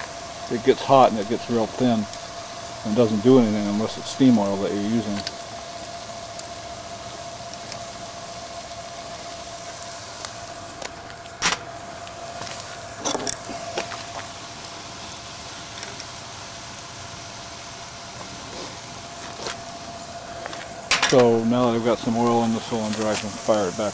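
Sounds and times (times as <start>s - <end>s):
steady faint whine: 0.0s - 23.9s.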